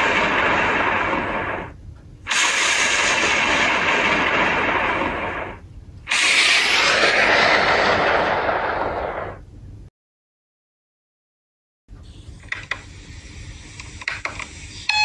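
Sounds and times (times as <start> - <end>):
loud rushing noise: 0.0 - 9.4
blast-like rumble: 0.0 - 9.5.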